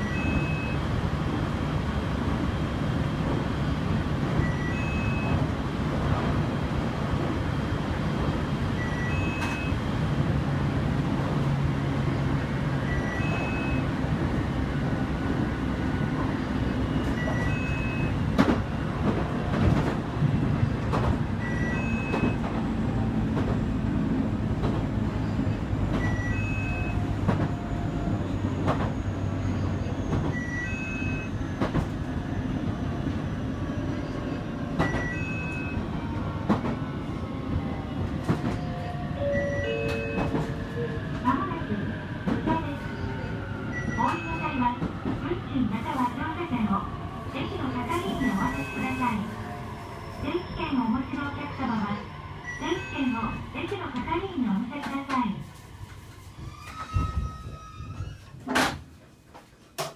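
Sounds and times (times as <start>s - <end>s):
train wheels rumbling on rail: 0.0s - 59.9s
rail-joint clicks: 39.4s - 40.6s.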